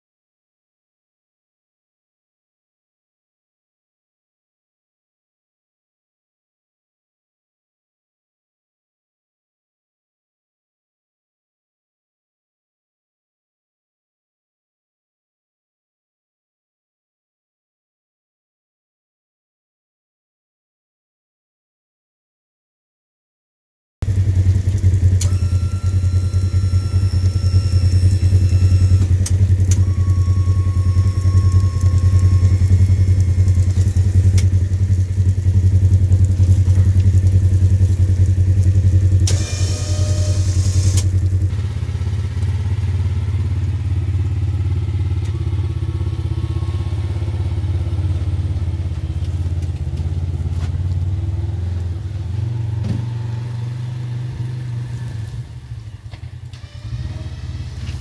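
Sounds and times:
engine running: 24.0s - 58.0s
engine whine: 24.0s - 58.0s.

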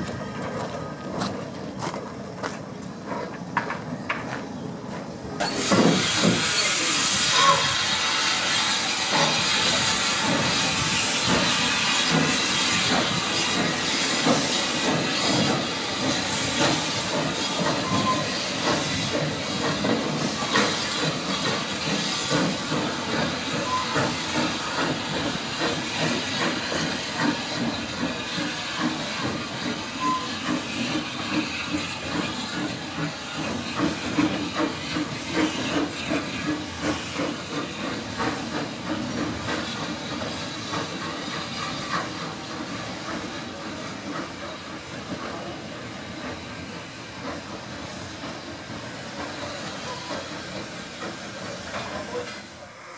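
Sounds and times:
steam locomotive exhaust beat: 0.0s - 52.9s
steam hissing: 5.3s - 52.9s.

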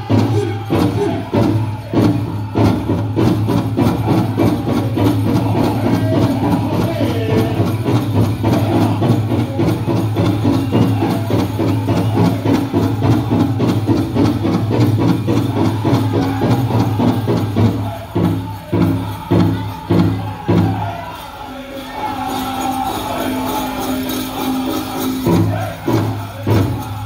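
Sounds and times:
big drum beating: 0.0s - 20.9s
drum group singing: 0.0s - 27.0s.

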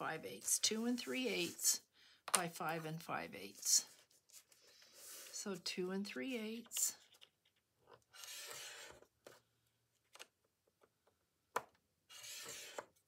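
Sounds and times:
stylus scratching paper: 12.1s - 12.8s.

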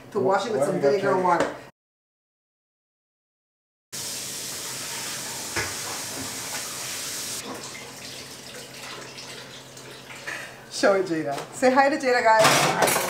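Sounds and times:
tap water running into metal bowl: 4.0s - 10.5s.

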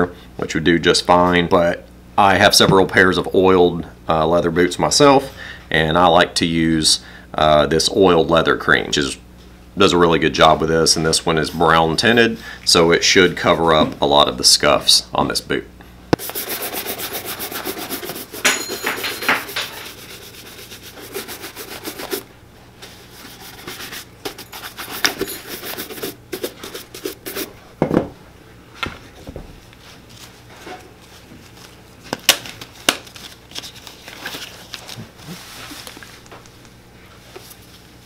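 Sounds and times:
rubbing on leather boot: 16.2s - 18.4s, 19.4s - 22.2s, 23.0s - 27.5s.

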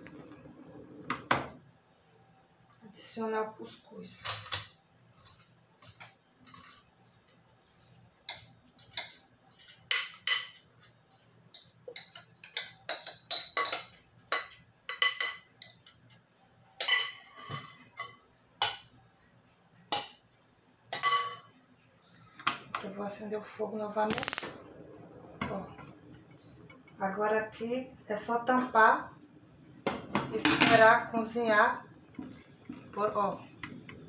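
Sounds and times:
bowl and utensil clinking on metal pot: 16.8s - 18.8s, 21.0s - 21.5s.

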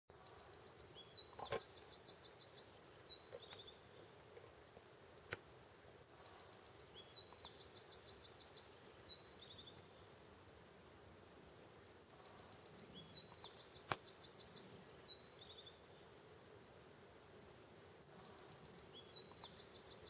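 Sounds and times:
songbird singing: 0.1s - 4.6s, 6.0s - 10.3s, 12.0s - 16.3s, 18.0s - 20.0s.

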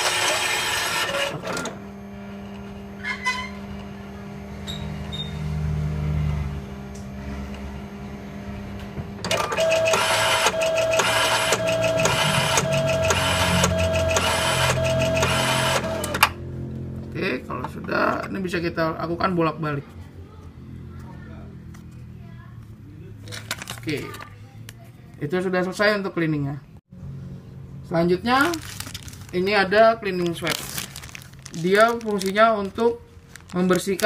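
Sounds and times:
feed rollers whining and clattering: 0.0s - 4.0s, 8.4s - 16.4s
printer motor hum: 0.0s - 16.4s.

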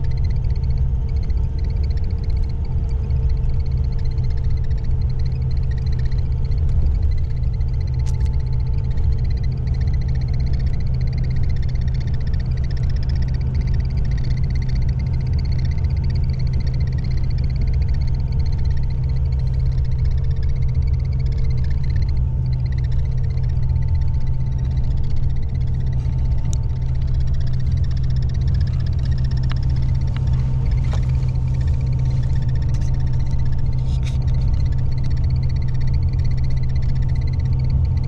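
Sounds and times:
engine and road drone: 0.0s - 38.0s
faint steady whine: 0.0s - 38.0s.

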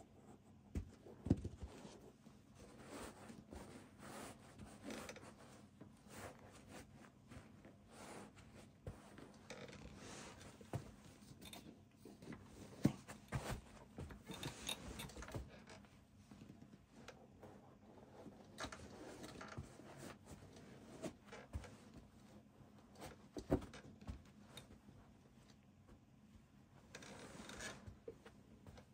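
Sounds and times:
shoes knocking on carpet: 12.8s - 14.2s.

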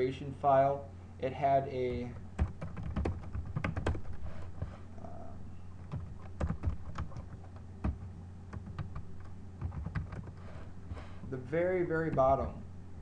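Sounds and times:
steady low hum: 0.0s - 13.0s
keyboard typing: 2.4s - 4.2s, 5.8s - 10.4s.

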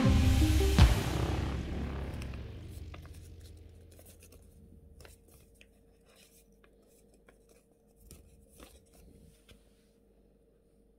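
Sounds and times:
paper rustling and crinkling: 2.8s - 9.8s.

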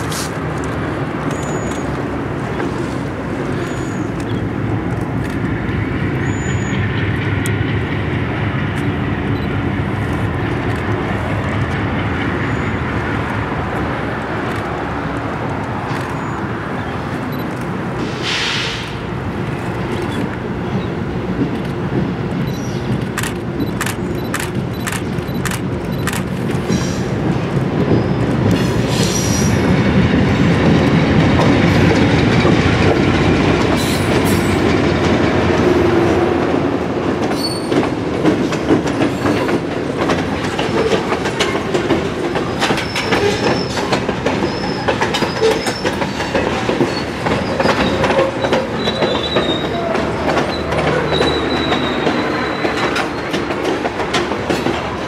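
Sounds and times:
diesel locomotives passing: 0.0s - 55.0s
wheels squealing: 1.2s - 4.5s, 6.2s - 7.0s, 15.8s - 17.5s, 42.4s - 53.5s
wheels clicking over rail joints: 10.0s - 18.0s, 37.1s - 55.0s.

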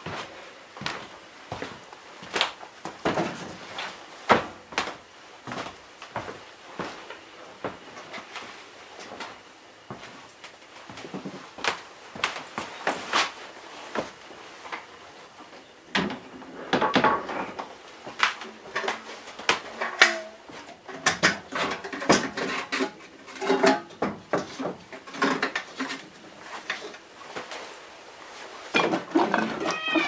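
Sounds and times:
metal bucket clanking and rattling: 19.7s - 26.1s, 28.7s - 29.9s.

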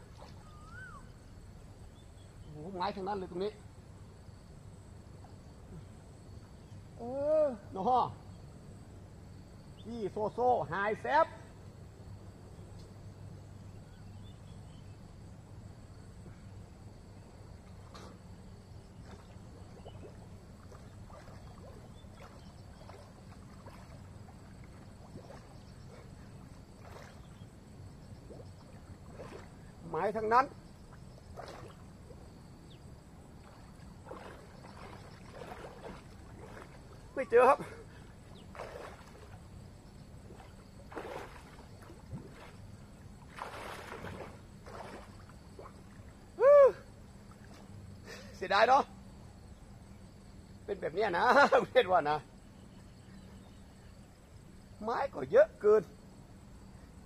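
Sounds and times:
small splashes: 0.0s - 1.2s, 17.6s - 48.3s
water sloshing and trickling: 0.0s - 7.0s, 11.6s - 48.3s
low steady rumble: 10.8s - 51.0s.

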